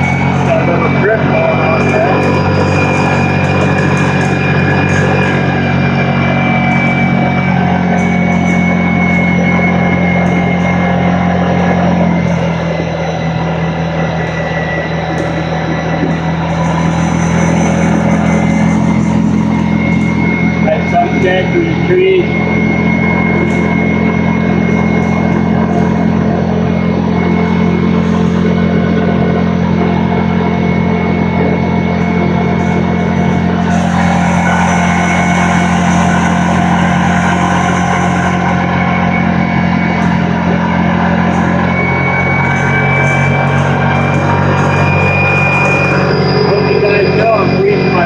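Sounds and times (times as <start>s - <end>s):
atv engine droning: 0.0s - 48.0s
rock music with guitar: 0.0s - 48.0s.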